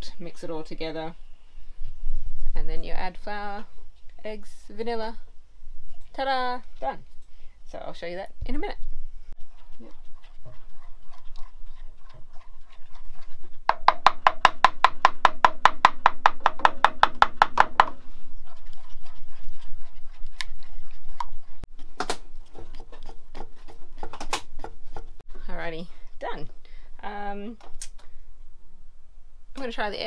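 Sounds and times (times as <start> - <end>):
utensil beating in a metal pot: 9.6 - 21.7.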